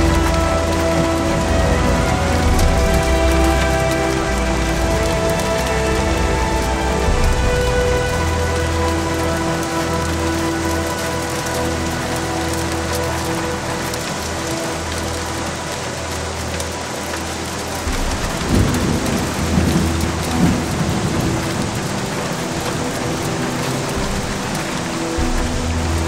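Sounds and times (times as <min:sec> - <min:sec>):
deep thunder rumble: 0:00.0 - 0:08.4, 0:17.9 - 0:26.0
heavy rain on car: 0:00.0 - 0:26.0.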